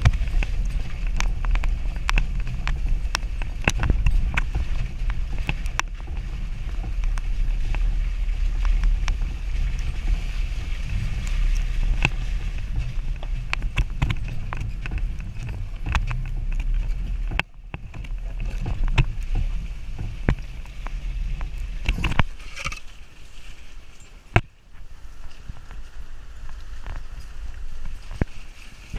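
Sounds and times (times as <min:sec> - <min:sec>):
engine low rumble: 0:00.0 - 0:28.9
knocks and rattles: 0:08.6 - 0:22.9.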